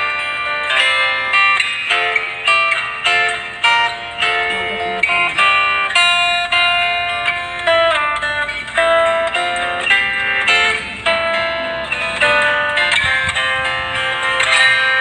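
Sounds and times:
plucked guitar melody: 0.0 - 15.0.

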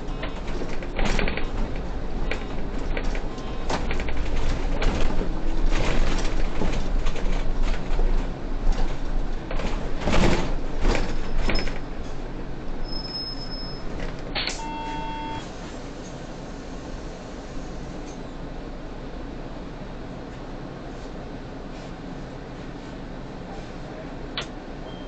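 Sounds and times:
bus door noise: 0.0 - 18.6, 20.2 - 25.0
short electronic beep: 14.5 - 15.5.

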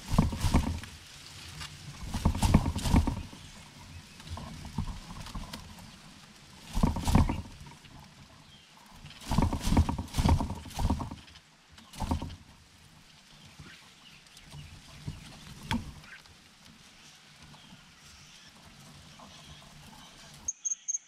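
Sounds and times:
rustling in dry leaves: 0.0 - 20.5.

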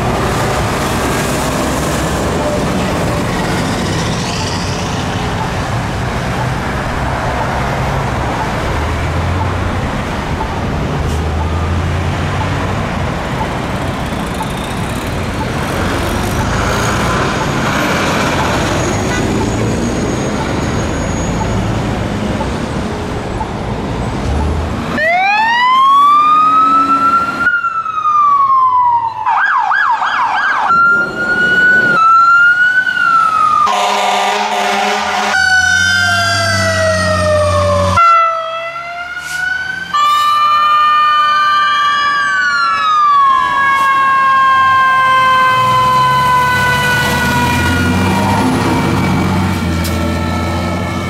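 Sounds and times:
fire truck siren wail and yelp: 0.0 - 12.6, 24.9 - 51.0
loud horn blast: 33.7 - 35.8.

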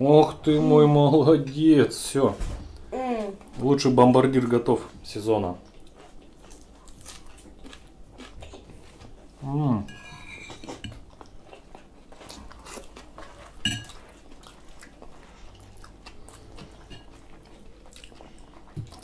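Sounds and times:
cutlery clinking on plates: 9.8 - 11.0, 13.6 - 14.0.

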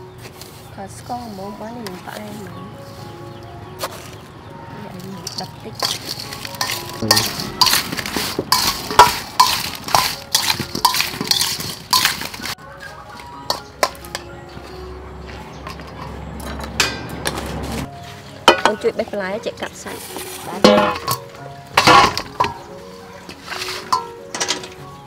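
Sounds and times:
metal spoon scraping bowl: 5.1 - 14.2, 20.0 - 24.8.

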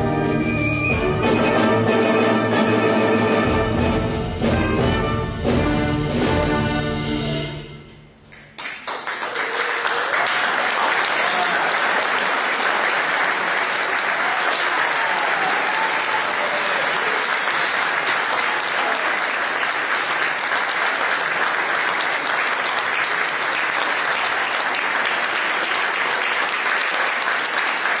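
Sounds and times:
audience applauding: 8.3 - 28.0.

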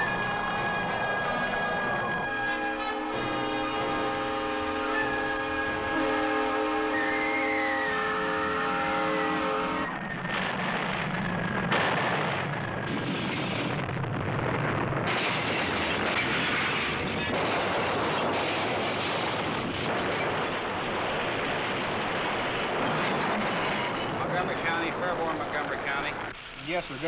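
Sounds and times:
locomotive air horn: 0.0 - 10.0
thin whistle in wind: 4.6 - 10.3
roar of wind and debris: 9.5 - 26.4.

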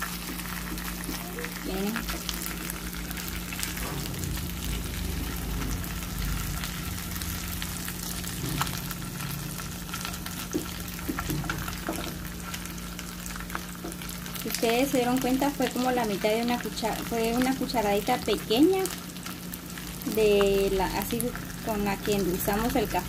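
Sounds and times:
food sizzling in frying pan: 0.0 - 23.0.

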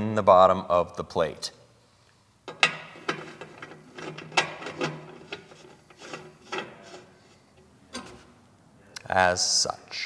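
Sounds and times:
metal threads scraping: 2.5 - 8.5.

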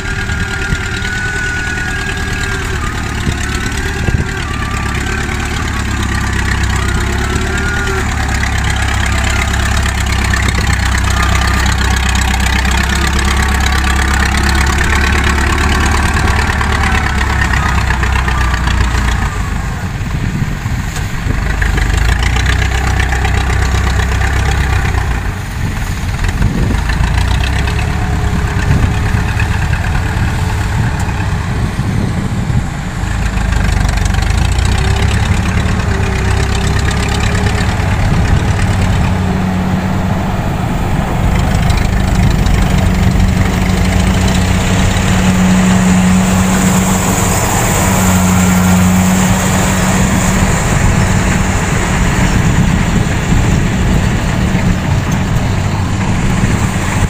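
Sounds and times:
tracked vehicle engine running: 0.0 - 57.0.

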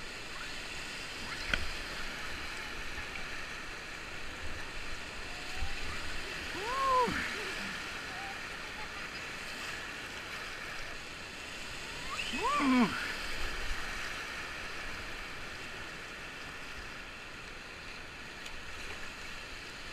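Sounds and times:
whitewater rushing: 0.0 - 10.5, 11.2 - 15.2
person crying out: 6.5 - 7.7, 12.1 - 13.2.

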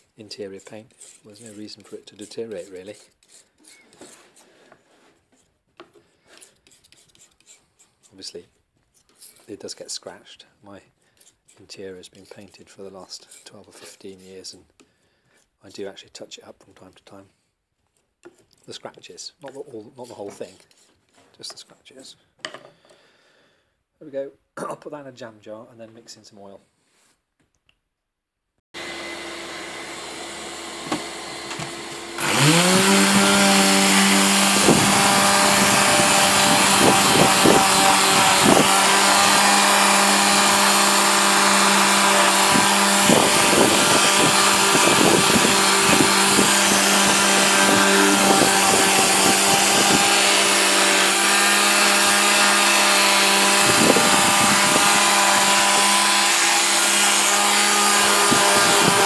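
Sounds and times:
paint scraping off wood: 0.2 - 10.0, 11.1 - 14.6, 19.4 - 21.6, 32.3 - 56.3
air tool motor whine: 28.8 - 59.0.

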